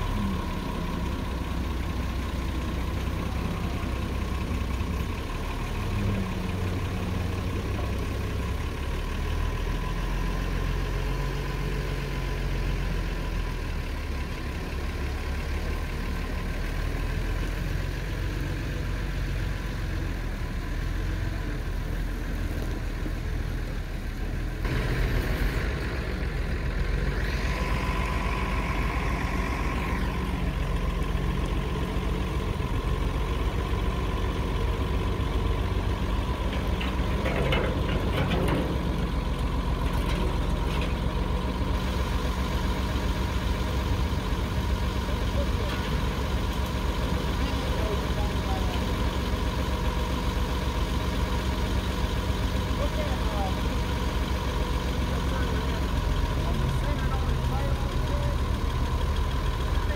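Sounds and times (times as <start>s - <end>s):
forklift engine idling: 0.0s - 59.9s.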